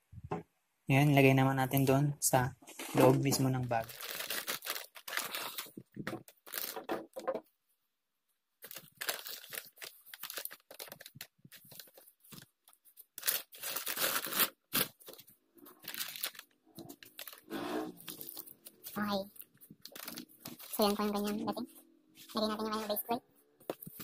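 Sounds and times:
foil and fabric crinkling: 2.7 - 7.1, 8.6 - 21.6.

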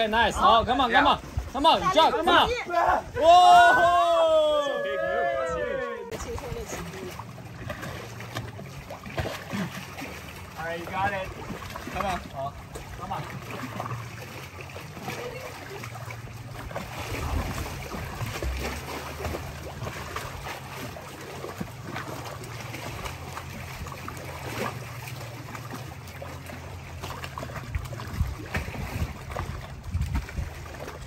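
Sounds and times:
water lapping and splashing: 0.0 - 31.0
wind buffeting microphone: 28.0 - 31.0.

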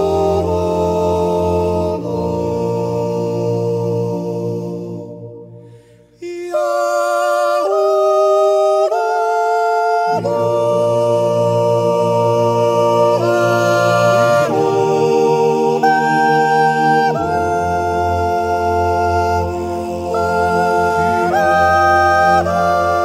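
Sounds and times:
unaccompanied voices singing chords: 0.0 - 23.0.

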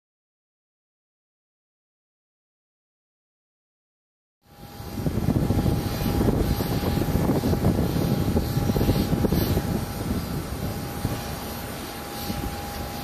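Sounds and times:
high whine: 4.4 - 13.0.

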